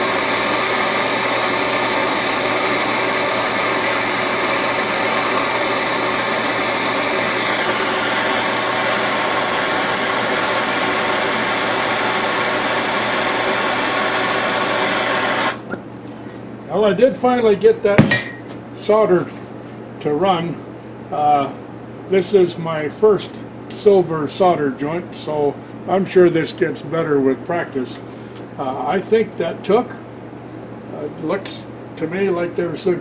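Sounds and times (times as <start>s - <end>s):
gas torch flame hissing: 0.0s - 15.7s.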